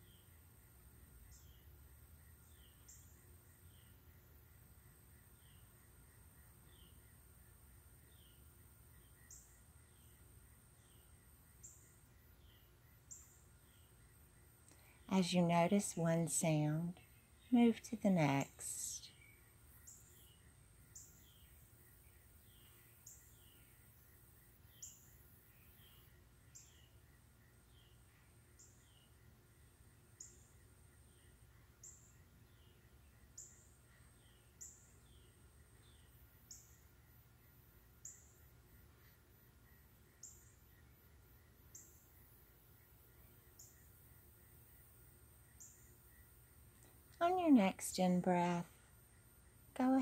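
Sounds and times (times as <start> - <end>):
faint low hum: 0.0 - 50.0
bird chirping: 1.2 - 50.0.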